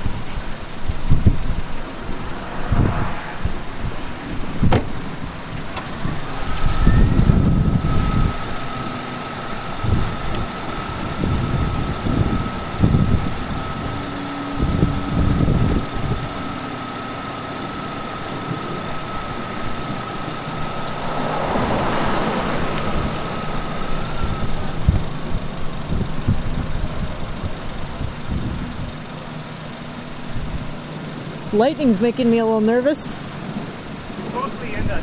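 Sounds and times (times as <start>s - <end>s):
wind buffeting microphone: 0.0s - 30.9s
steady high tone: 0.7s - 5.4s, 10.7s - 26.2s
vehicle passing: 1.0s - 5.7s, 18.4s - 25.6s.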